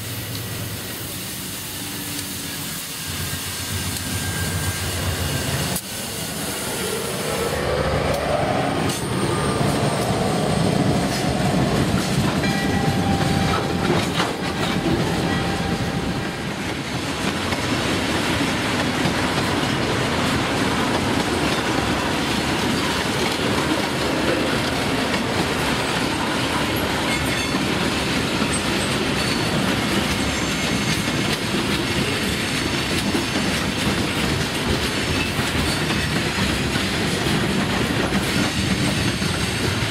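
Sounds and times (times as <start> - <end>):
freight train wheels rumbling: 0.0 - 39.9
train wheel squeals: 0.9 - 16.2, 26.6 - 32.7, 34.9 - 39.9.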